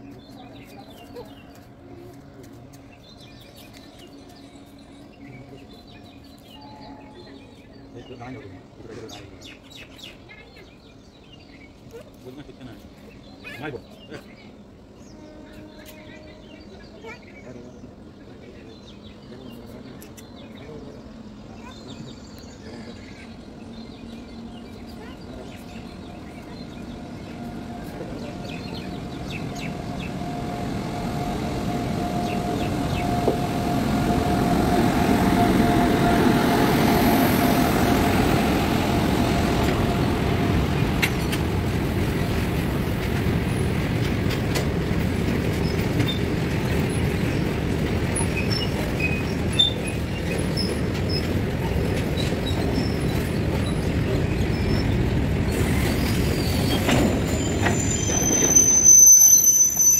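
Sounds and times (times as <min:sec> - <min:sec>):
electric locomotive passing: 0:00.0 - 0:59.9
goods wagons rumbling on rails: 0:16.1 - 0:59.9.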